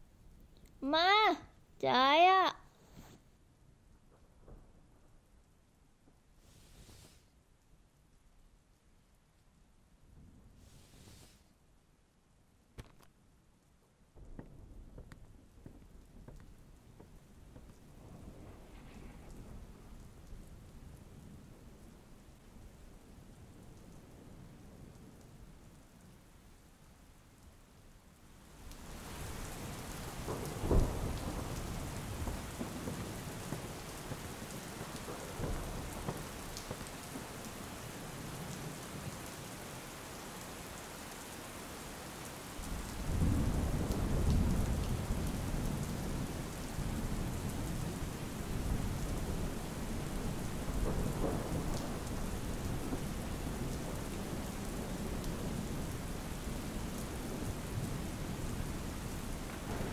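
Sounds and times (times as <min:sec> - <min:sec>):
heavy rain: 0:00.0 - 0:59.9
thunder: 0:04.0 - 0:05.2, 0:14.2 - 0:25.7, 0:28.9 - 0:39.2, 0:42.6 - 0:59.9.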